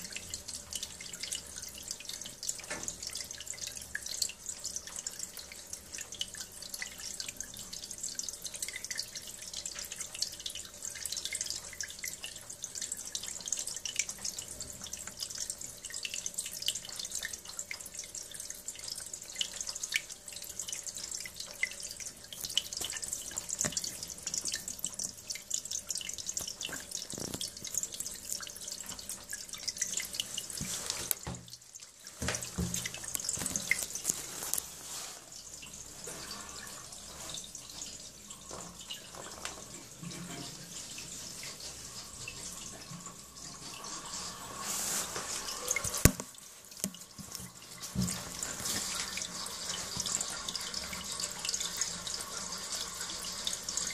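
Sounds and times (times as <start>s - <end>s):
water gushing into toilet bowl: 0.0s - 53.9s.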